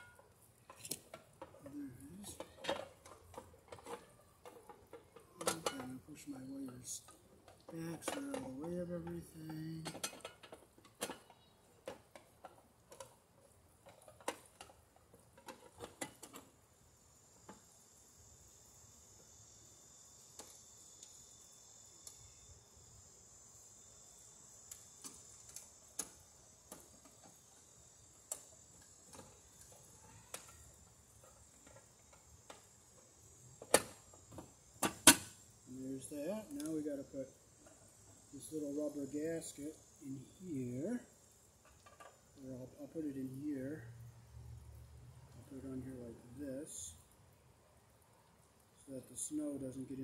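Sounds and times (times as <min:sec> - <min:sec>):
high insect drone: 0:00.0 - 0:50.0.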